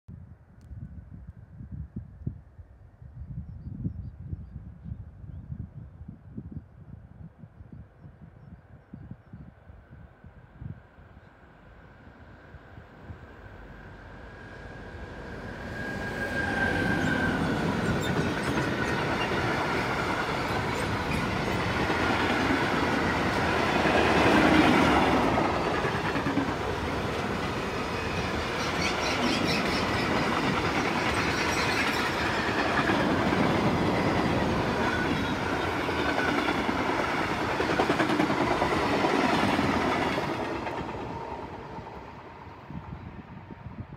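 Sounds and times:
train wheels rumbling on rails: 0:13.6 - 0:43.5
clickety-clack over rail joints: 0:28.6 - 0:41.2.

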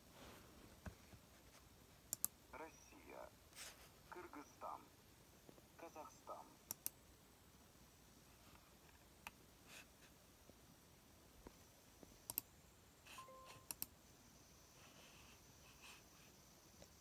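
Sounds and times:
sharp clicks: 0:02.1 - 0:02.4, 0:06.7 - 0:07.0, 0:12.2 - 0:12.5, 0:13.7 - 0:13.9
faint falling beep: 0:13.1 - 0:13.7.

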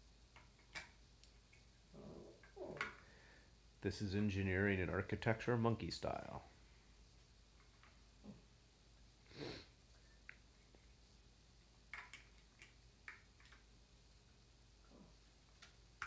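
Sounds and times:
breathy sniff: 0:09.3 - 0:09.8
plastic building blocks clicking: 0:11.9 - 0:13.7.

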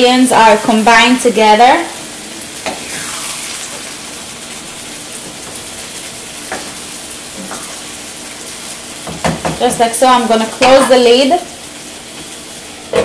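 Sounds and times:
vegetables sizzling in frying pan: 0:00.0 - 0:13.0
spoon knocking on pan: 0:06.5 - 0:06.8, 0:09.0 - 0:09.8.

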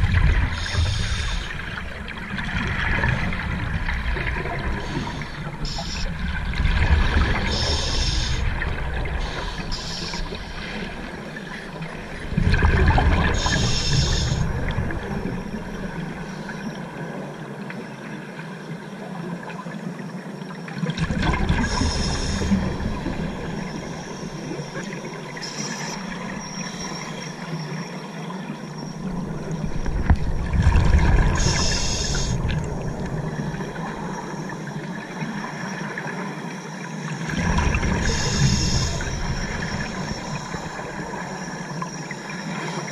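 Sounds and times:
scuba regulator exhaust bubbles: 0:00.0 - 0:16.2, 0:20.9 - 0:27.0, 0:29.0 - 0:35.0, 0:37.2 - 0:42.2
low rumble of water: 0:00.0 - 0:42.9.

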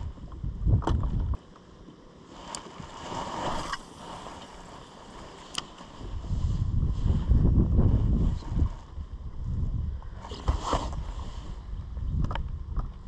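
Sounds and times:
wind rumble on microphone: 0:00.0 - 0:01.4, 0:02.3 - 0:13.0
faint hiss of open water: 0:01.9 - 0:12.0.

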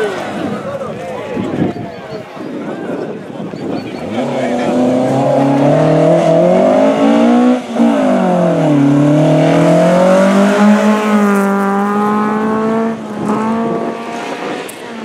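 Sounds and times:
rally car engine revving: 0:03.9 - 0:15.0.

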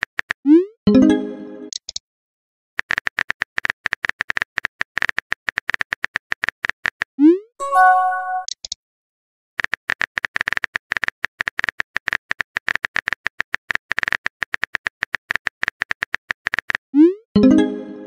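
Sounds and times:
message chime: 0:07.6 - 0:08.5, 0:17.4 - 0:18.0.

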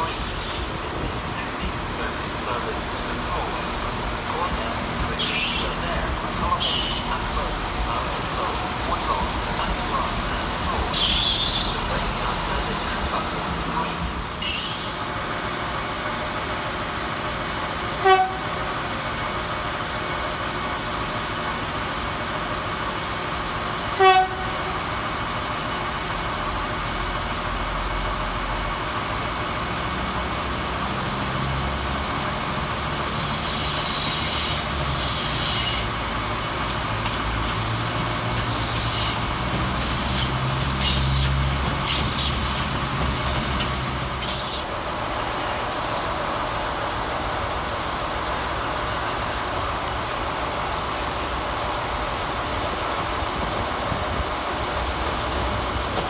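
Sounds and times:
train wheels squealing: 0:00.0 - 0:00.7, 0:10.9 - 0:11.9, 0:14.4 - 0:15.1, 0:33.1 - 0:35.9, 0:37.6 - 0:44.7
railcar engine rumbling: 0:00.0 - 0:56.0
train horn toot: 0:18.0 - 0:18.5, 0:24.0 - 0:24.5.

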